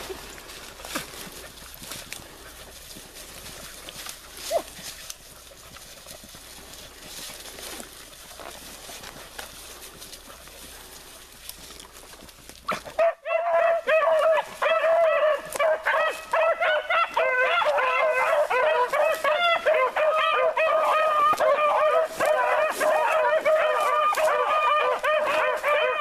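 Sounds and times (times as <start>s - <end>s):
dogs baying and howling: 12.7s - 26.0s.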